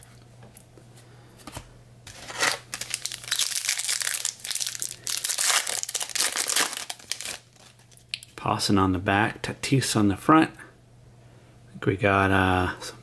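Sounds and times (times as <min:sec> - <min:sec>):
card pack wrapper crinkling and tearing: 0:02.1 - 0:08.2.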